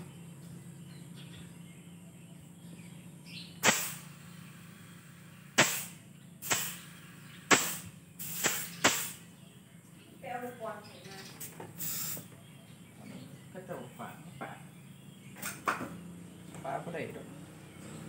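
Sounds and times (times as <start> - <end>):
steady low hum: 0.0 - 18.0
compressed air hose blasts: 3.6 - 9.4, 11.4 - 12.3.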